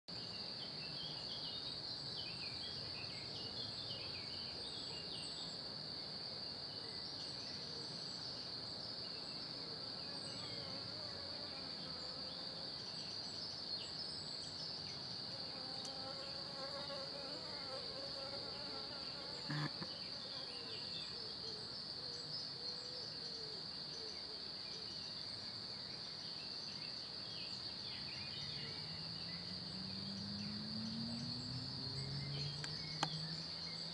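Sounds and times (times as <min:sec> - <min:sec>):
flying insect buzzing: 0:15.4 - 0:20.7
faint chirps: 0:17.7 - 0:33.9.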